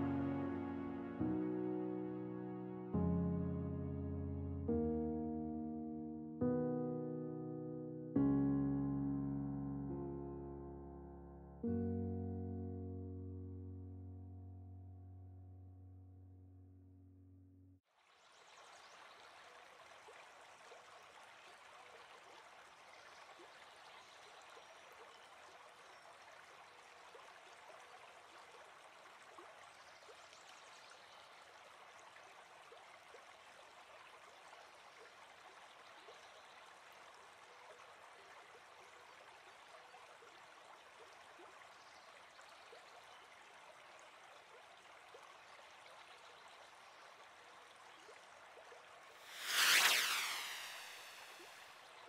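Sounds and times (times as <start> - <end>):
faint steady rushing noise: 49.2 - 51.8.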